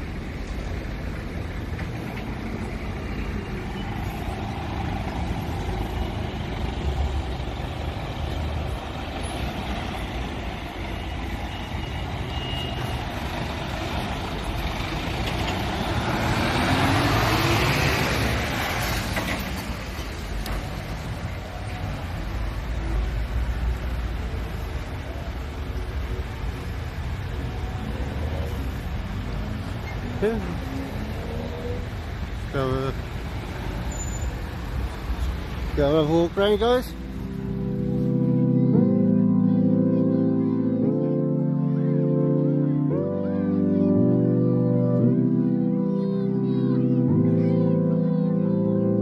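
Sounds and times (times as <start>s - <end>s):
low hum of passing cars: 0.0s - 49.0s
vehicle driving close by: 12.8s - 22.8s.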